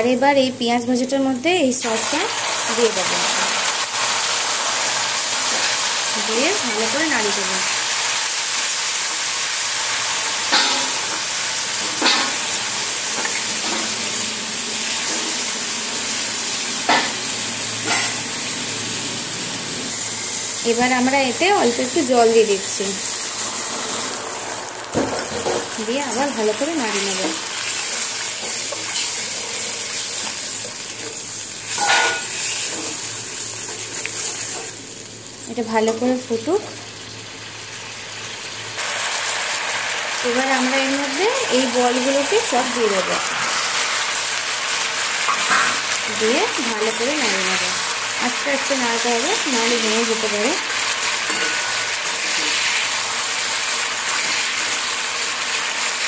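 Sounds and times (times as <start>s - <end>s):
onions sizzling in hot oil: 0.0s - 56.0s
steel spatula striking pan: 10.5s - 11.2s, 12.0s - 12.5s, 16.8s - 17.2s, 17.8s - 18.2s, 31.7s - 32.9s
metal spatula stirring: 51.3s - 51.7s.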